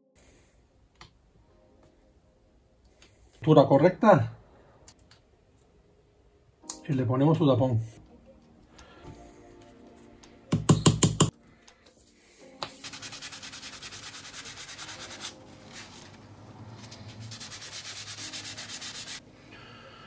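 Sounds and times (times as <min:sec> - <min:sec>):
cloth rubbing wooden handle: 0:12.8 - 0:19.2.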